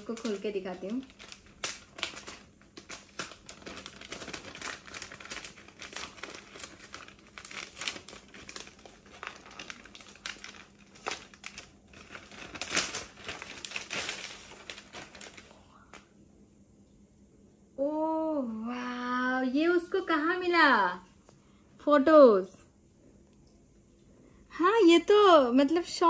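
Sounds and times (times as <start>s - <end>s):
gift wrap crinkling: 0.0s - 16.0s.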